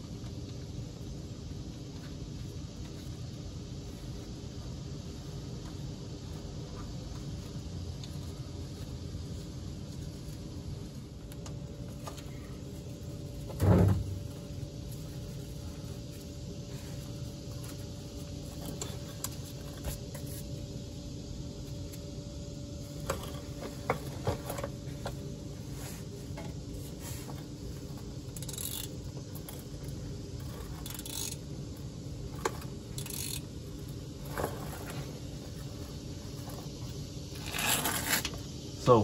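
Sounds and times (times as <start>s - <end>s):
low background hum: 0.0s - 39.0s
socket ratchet clicking: 28.3s - 29.0s, 30.7s - 31.4s, 32.9s - 33.5s.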